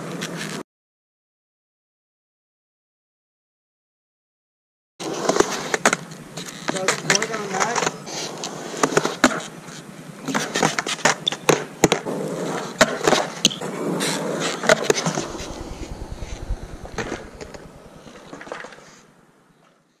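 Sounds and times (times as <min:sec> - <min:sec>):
skateboard rolling on concrete: 0:00.0 - 0:00.6, 0:05.0 - 0:19.6.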